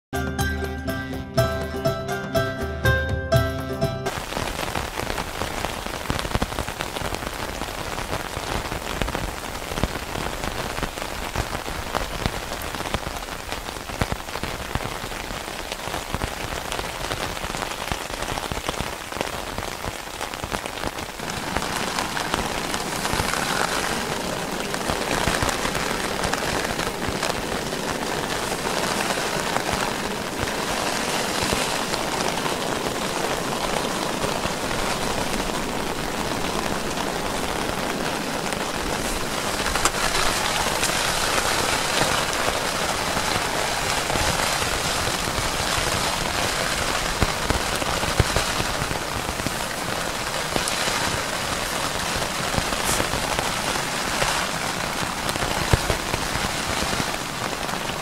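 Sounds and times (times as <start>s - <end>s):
heavy rain on canvas tent: 3.3s - 58.0s.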